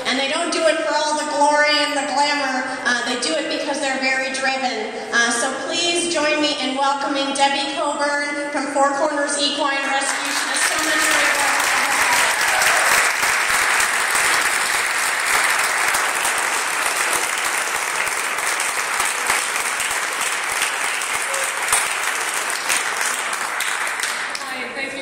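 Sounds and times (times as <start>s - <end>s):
audience applauding: 9.9s - 24.6s.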